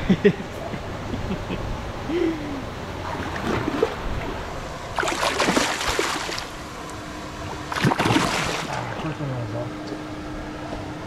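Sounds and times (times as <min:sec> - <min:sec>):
low outdoor background noise: 0:00.0 - 0:11.0
water splashing: 0:03.0 - 0:09.0.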